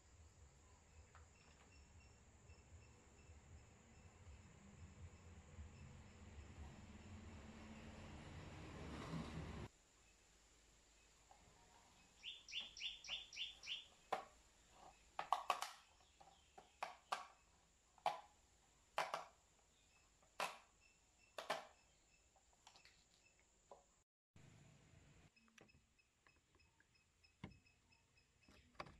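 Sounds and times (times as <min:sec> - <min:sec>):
bird chirping: 0:11.8 - 0:17.6, 0:19.6 - 0:23.4
plastic clicks and knocks: 0:14.1 - 0:17.4, 0:18.0 - 0:18.3, 0:19.0 - 0:19.4, 0:20.4 - 0:20.7, 0:21.4 - 0:21.8.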